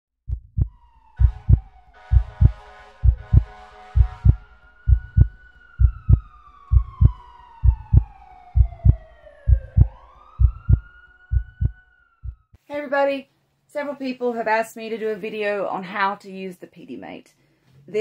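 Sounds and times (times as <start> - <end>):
heartbeat thumps: 0.3 - 12.6
emergency siren wailing: 0.6 - 12.6.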